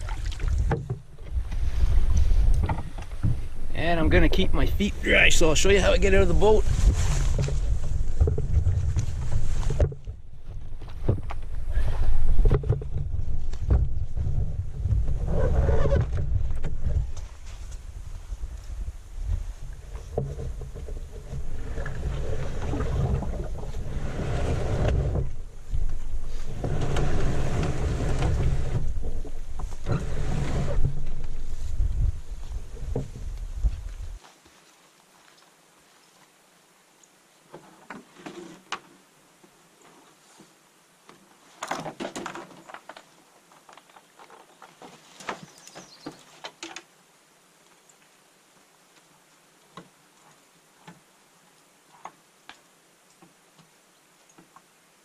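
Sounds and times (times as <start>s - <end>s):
canoe hull scraping over ground: 0.0s - 18.2s, 19.2s - 34.7s, 37.6s - 38.7s.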